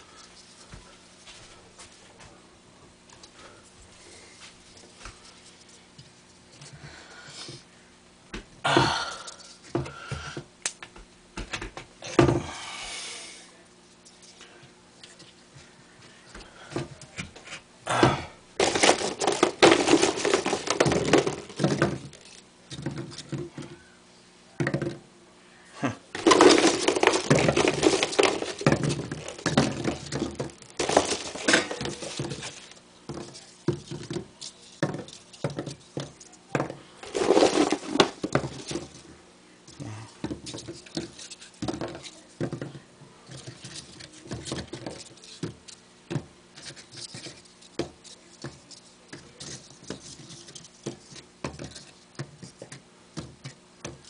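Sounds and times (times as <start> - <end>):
crumpled paper balls clattering on wood: 18.6 - 23.8, 26.1 - 54.0.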